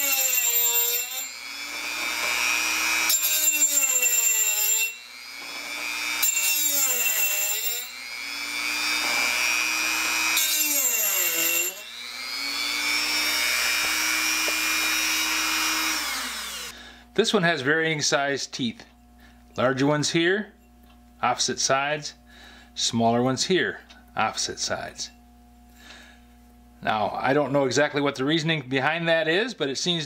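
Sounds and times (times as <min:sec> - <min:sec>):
rotary tool grinding metal: 0:00.0 - 0:16.8
rotary tool motor whine: 0:00.0 - 0:16.8.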